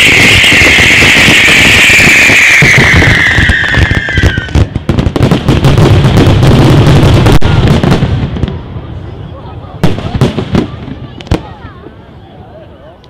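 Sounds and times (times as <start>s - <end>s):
high falling firework hiss: 0.0s - 5.0s
firework bangs and crackling: 0.0s - 12.1s.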